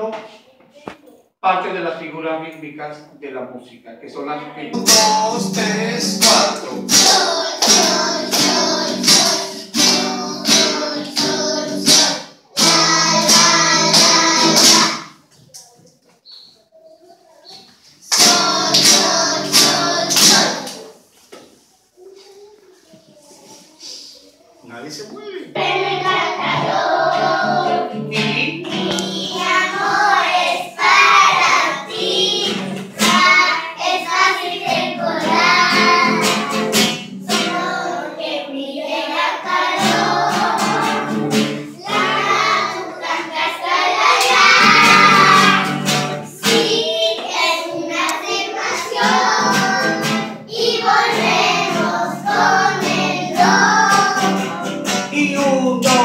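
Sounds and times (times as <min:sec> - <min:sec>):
children singing: 0:04.7 - 0:15.2, 0:16.4 - 0:21.0, 0:25.5 - 0:56.0
strummed acoustic guitar: 0:04.8 - 0:15.0, 0:18.1 - 0:20.7, 0:25.6 - 0:33.6, 0:34.2 - 0:38.1, 0:39.2 - 0:47.1, 0:47.8 - 0:56.0.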